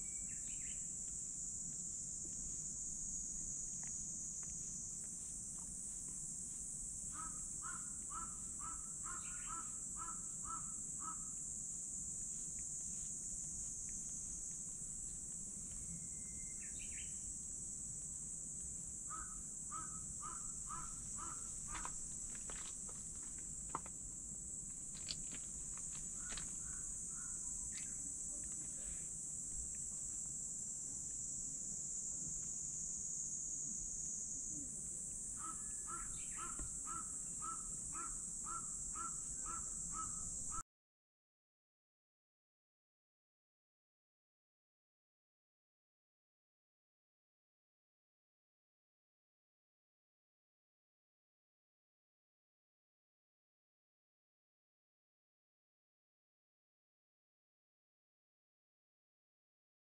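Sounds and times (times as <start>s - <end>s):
cicadas droning: 0.0s - 40.6s
crow cawing: 7.1s - 11.2s, 19.1s - 22.0s, 26.2s - 27.4s, 35.4s - 40.2s.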